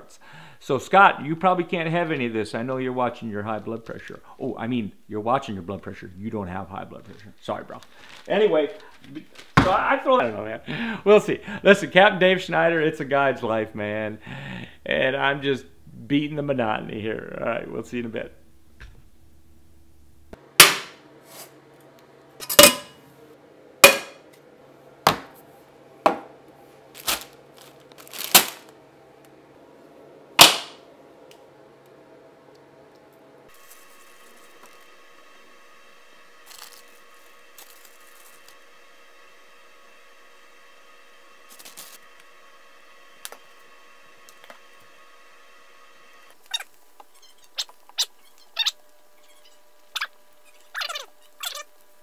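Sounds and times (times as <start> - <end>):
faint steady hum: 0.0 - 52.0
spatula squeaking in skillet: 46.4 - 51.7.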